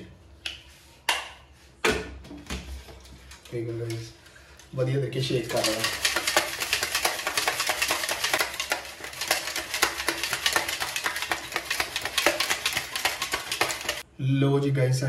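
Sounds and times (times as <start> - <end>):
ice rattling in metal shaker: 5.2 - 14.0.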